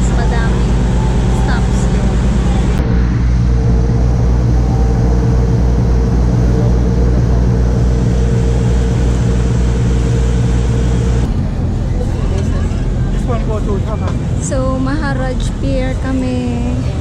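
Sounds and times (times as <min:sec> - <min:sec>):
boat diesel engine drone: 0:00.0 - 0:17.0
faint steady hum: 0:00.0 - 0:17.0.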